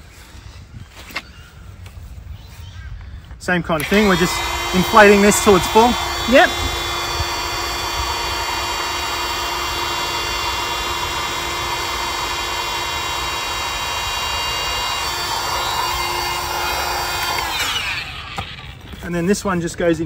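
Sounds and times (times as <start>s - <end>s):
electric air pump whining: 3.7s - 19.3s.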